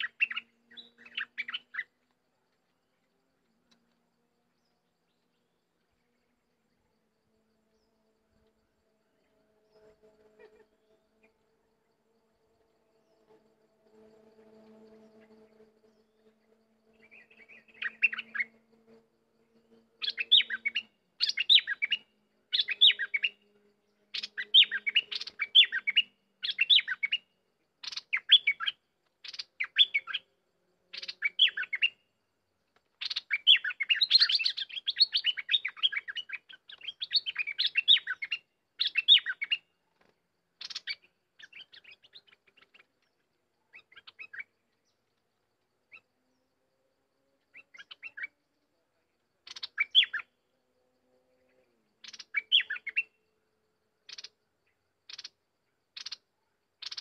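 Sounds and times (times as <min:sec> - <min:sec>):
bird chattering song: 0:00.0 - 0:02.0, 0:17.0 - 0:18.6, 0:20.0 - 0:23.4, 0:24.1 - 0:30.3, 0:30.9 - 0:32.0, 0:33.0 - 0:39.6, 0:40.6 - 0:42.9, 0:49.4 - 0:50.3, 0:52.0 - 0:53.2, 0:54.1 - 0:54.4, 0:55.1 - 0:55.4, 0:56.0 - 0:57.0.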